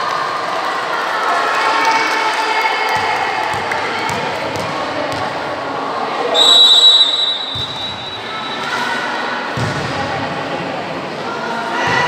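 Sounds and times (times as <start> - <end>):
referee's whistle blast: 6.4 - 8.7.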